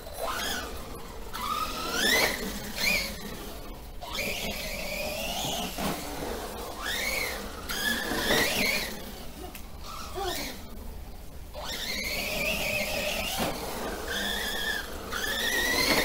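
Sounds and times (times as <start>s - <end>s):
electric motor whining: 0.0s - 10.7s, 11.5s - 16.0s.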